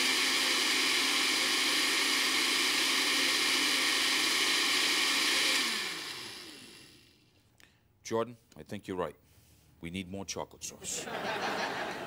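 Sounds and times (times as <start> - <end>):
blender motor whirring: 0.0 - 7.3.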